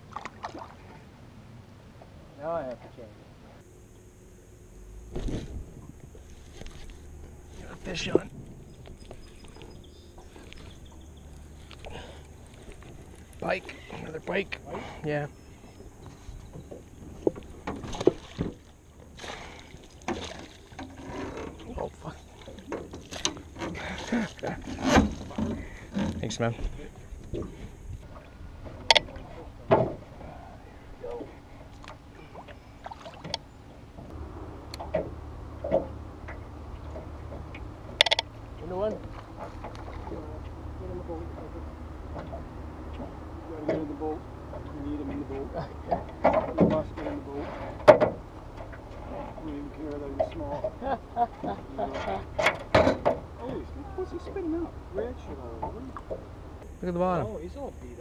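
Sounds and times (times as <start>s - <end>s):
low steady hum: 0.0s - 58.0s
low steady rumble: 0.0s - 58.0s
knocks and thumps in boat: 5.1s - 14.8s, 15.8s - 30.4s, 31.0s - 56.8s
fishing reel clicks and knocks: 38.0s - 38.3s.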